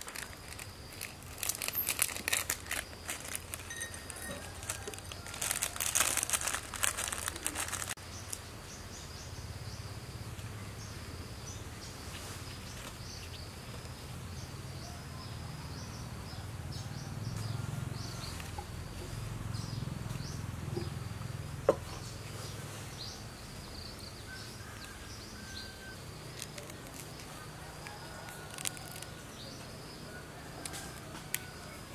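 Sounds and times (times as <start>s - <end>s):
banana leaf crinkling: 0.0s - 8.4s, 26.2s - 29.4s.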